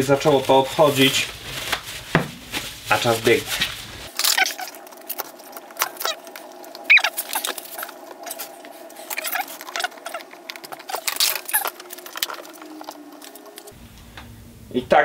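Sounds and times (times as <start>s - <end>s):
faint steady hum: 0.0s - 15.0s
short squeaks: 6.8s - 7.9s.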